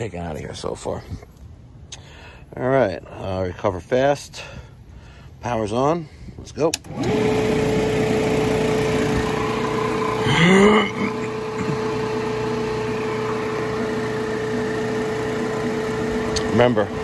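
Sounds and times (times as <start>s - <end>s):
machine compressor humming: 6.8s - 17.0s.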